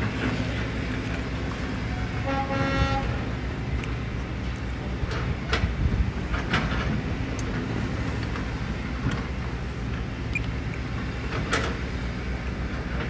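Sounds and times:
diesel engine rumbling: 0.0s - 13.0s
knocks and clanks: 5.0s - 9.3s.

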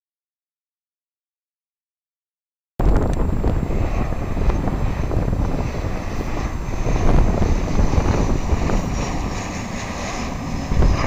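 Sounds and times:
thin high whine: 2.8s - 11.0s
turboprop plane rumble: 2.8s - 11.0s.

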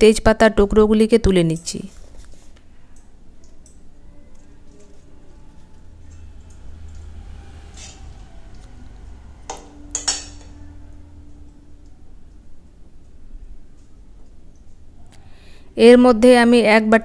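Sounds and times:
spatula clinking bowl: 3.4s - 8.7s, 9.4s - 11.4s.

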